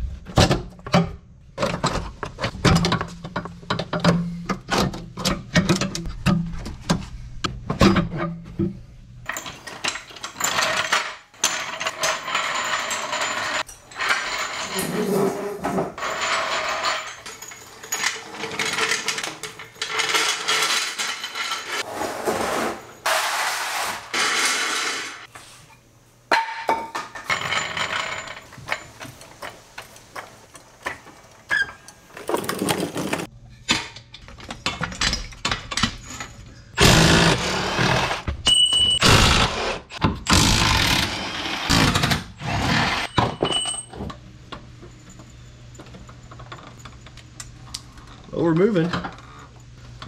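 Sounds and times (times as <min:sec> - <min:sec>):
tools clattering and ratcheting: 0:09.2 - 0:23.3, 0:26.4 - 0:37.3, 0:41.7 - 0:50.0.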